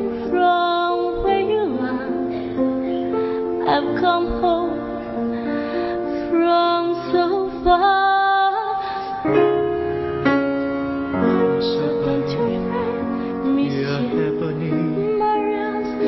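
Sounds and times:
woman singing a slow ballad: 0.0 - 2.6, 3.6 - 5.2, 6.2 - 9.6, 15.0 - 16.0
soft orchestral accompaniment: 0.0 - 16.0.

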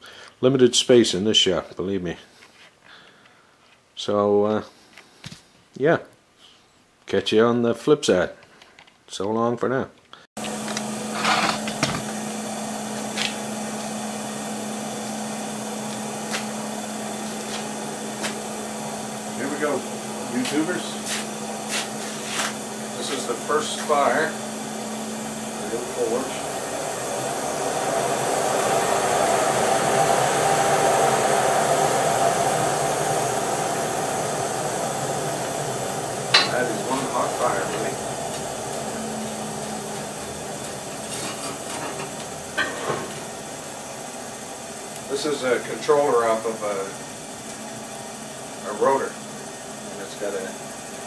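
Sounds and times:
forge blower humming: 10.4 - 51.0
fire crackles: 32.7 - 45.2.

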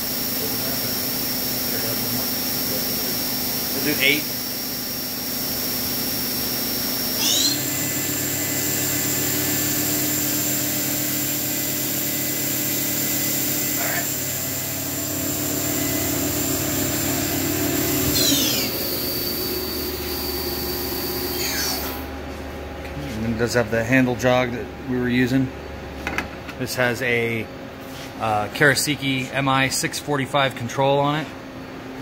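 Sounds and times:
machine spindle whine: 0.0 - 22.2.

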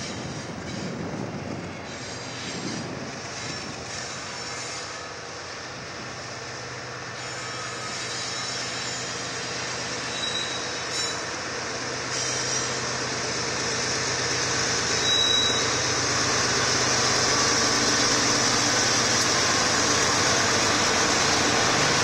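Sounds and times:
locomotive engines droning: 0.0 - 22.0.

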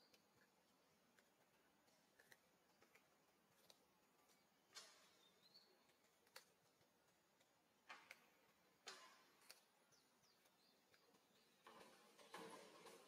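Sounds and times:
faint high chirp: 5.0 - 6.0.

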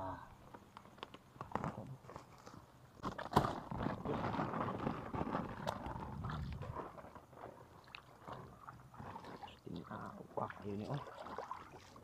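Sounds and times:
sloshing through shallow water: 5.6 - 12.0.

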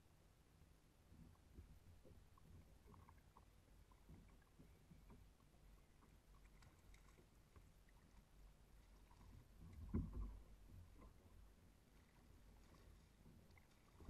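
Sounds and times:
water lapping against hull: 0.6 - 14.0
soft ticks and clicks: 1.0 - 11.6.

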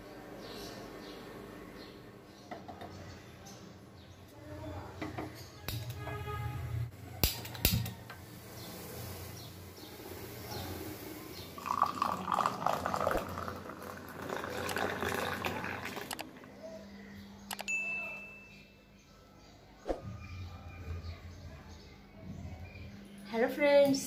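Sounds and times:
milk bubbling as it boils: 11.5 - 16.2
milk pouring into metal pot: 11.6 - 16.2.

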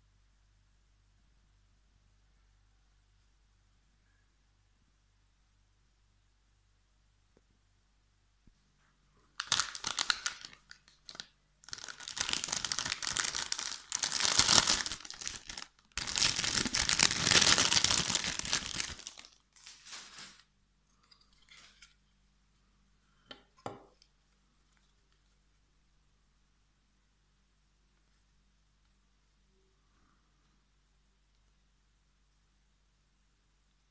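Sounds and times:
packaging tearing and crinkling: 9.4 - 20.4.

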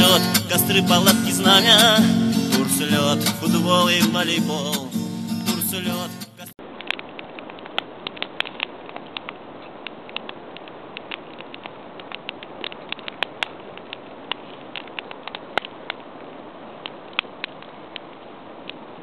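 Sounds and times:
campfire crackling and popping: 6.3 - 19.0.

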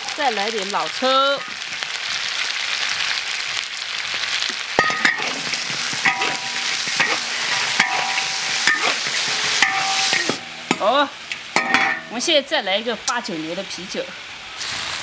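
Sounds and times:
meat sizzling in a wok: 0.0 - 15.0
metal spatula striking wok: 4.8 - 12.3.

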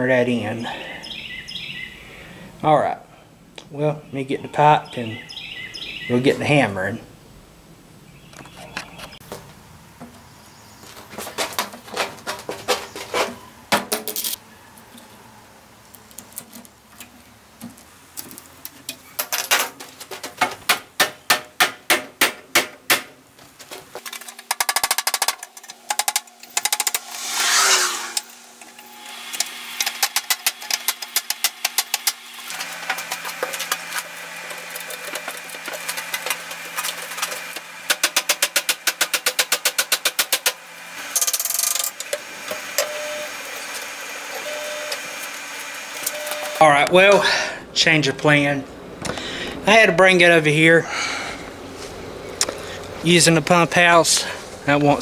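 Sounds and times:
falling squeal: 27.0 - 29.1.

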